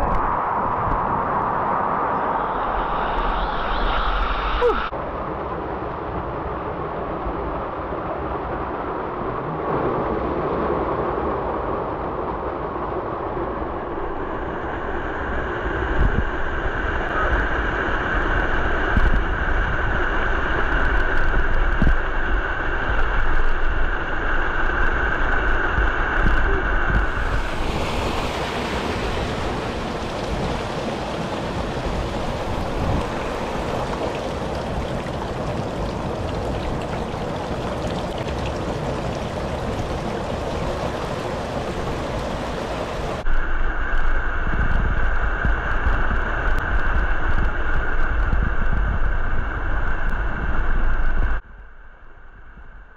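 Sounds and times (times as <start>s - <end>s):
wind rumbling on microphone: 0.0s - 52.9s
stream pouring over cascades: 26.2s - 43.2s.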